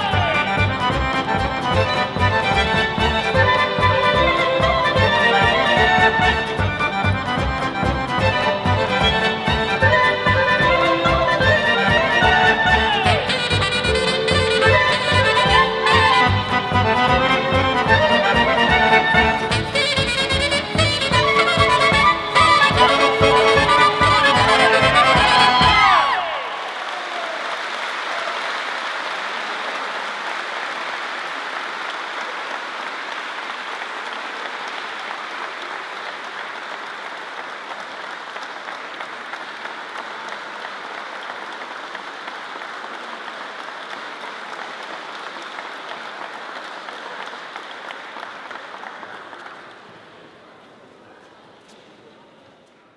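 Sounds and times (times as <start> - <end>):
audience applause: 21.1 - 51.2.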